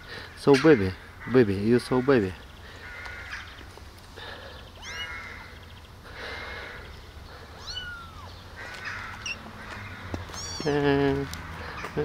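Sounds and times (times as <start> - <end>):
kittens mewing: 4.7 - 5.6, 6.7 - 9.4, 10.2 - 11.0.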